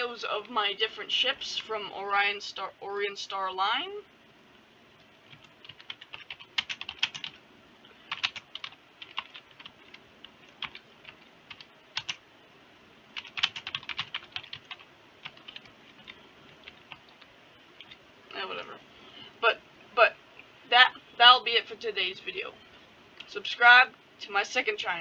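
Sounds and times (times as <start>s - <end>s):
typing on keyboard: 5.3s - 7.4s, 8.1s - 12.2s, 13.2s - 17.2s.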